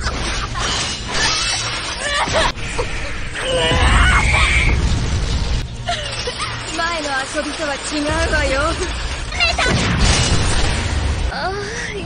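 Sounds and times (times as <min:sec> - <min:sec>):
background music: 0:00.0 - 0:12.0
heavy crash impacts: 0:06.5 - 0:11.3.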